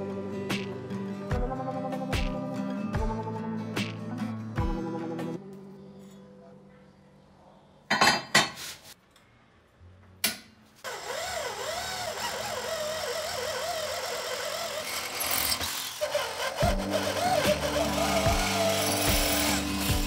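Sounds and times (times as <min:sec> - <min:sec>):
electric drill boring into metal: 0:10.9 - 0:20.0.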